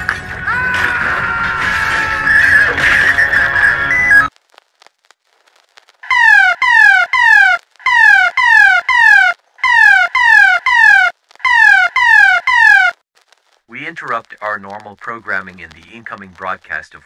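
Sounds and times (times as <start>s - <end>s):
short falling alert tones: 6.1s - 12.9s.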